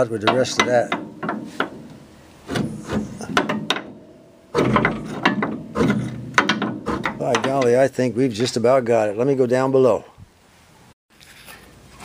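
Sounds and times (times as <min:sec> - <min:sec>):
metal handle scraping coil spring: 0:00.0 - 0:07.8
clanking knocks: 0:00.0 - 0:07.9.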